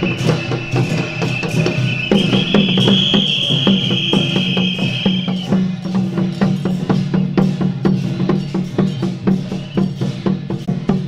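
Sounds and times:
drums beating fast rhythm: 0.0s - 11.0s.

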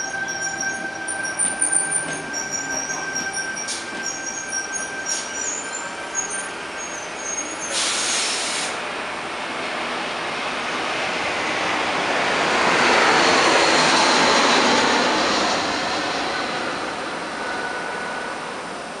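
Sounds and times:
electric train whooshing: 0.0s - 19.0s
short sharp hiss: 7.7s - 8.8s.

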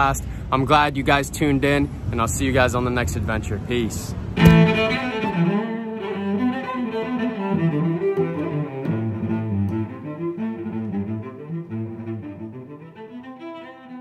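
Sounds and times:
melodic outro music: 4.4s - 5.4s.

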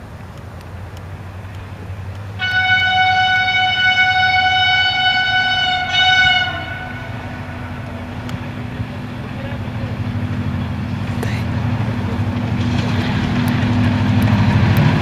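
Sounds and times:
low steady rumble: 0.0s - 15.0s
train horn blast: 2.4s - 10.1s.

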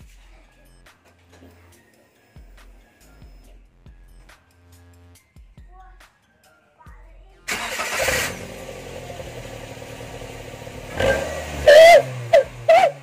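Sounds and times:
engine starting and idling: 7.5s - 13.0s.

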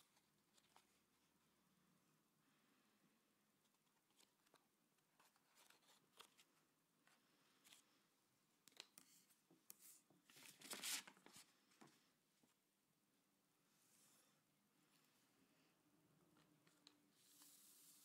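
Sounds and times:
paper rustling and crinkling: 3.7s - 6.6s, 10.2s - 12.0s.

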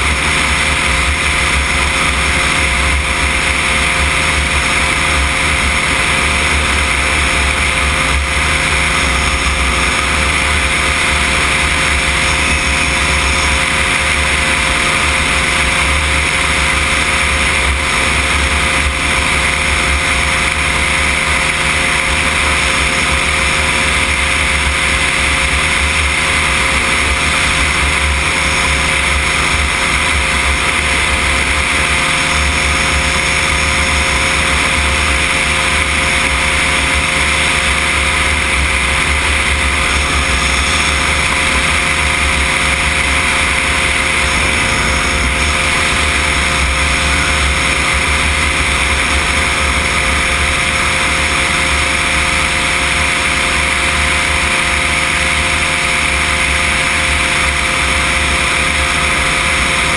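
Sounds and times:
airflow rushing: 0.0s - 54.0s
engine and propeller running: 0.0s - 59.9s.

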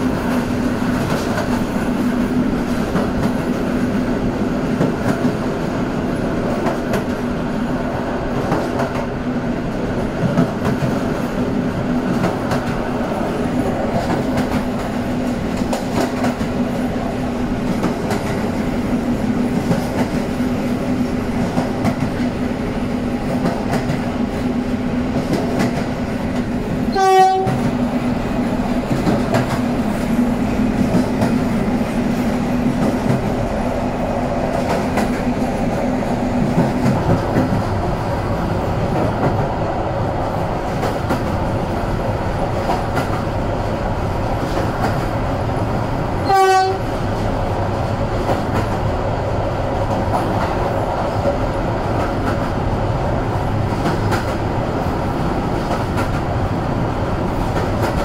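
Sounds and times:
train wheels rumbling on rails: 0.0s - 58.0s
locomotive horn blasts: 26.9s - 27.7s, 46.2s - 46.9s.

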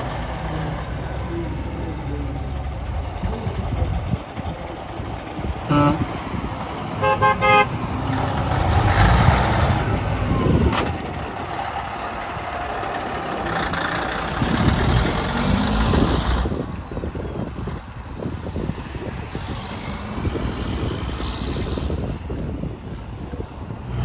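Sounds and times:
diesel truck engine passing: 0.0s - 24.0s
truck horn toots: 5.7s - 6.2s, 7.0s - 7.8s.

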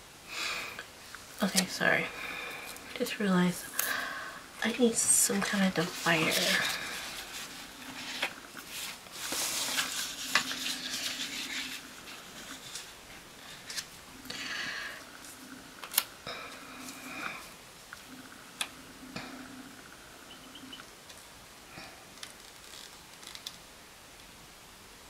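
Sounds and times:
paper rustling and crinkling: 5.3s - 13.9s.

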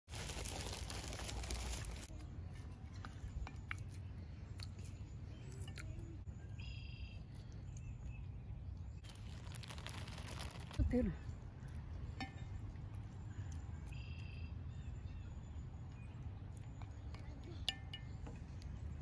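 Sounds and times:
plastic bag crinkling: 0.1s - 2.1s, 9.0s - 11.1s.

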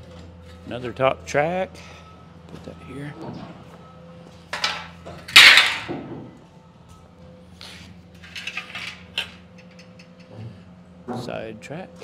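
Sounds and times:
metal clinks and scrapes: 8.2s - 10.3s.

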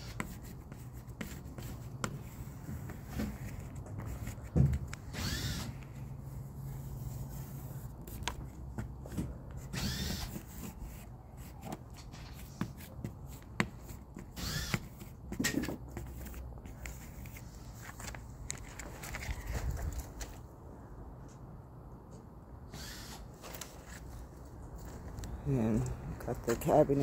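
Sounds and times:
plastic squeegee scraping vinyl film: 9.5s - 15.2s.

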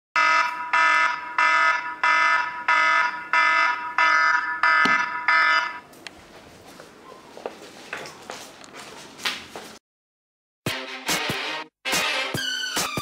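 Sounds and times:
phone being handled knock: 4.8s - 5.1s.

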